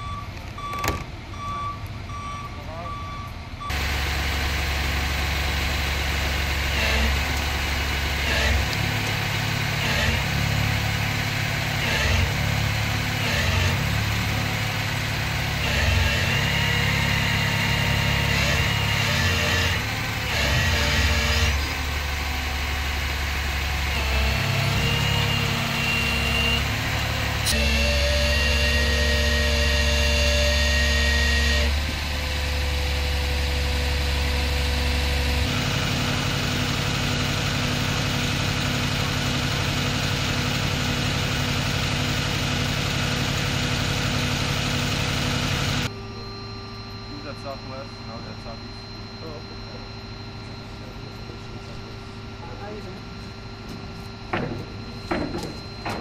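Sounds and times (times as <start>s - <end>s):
truck engine running: 0.0s - 56.0s.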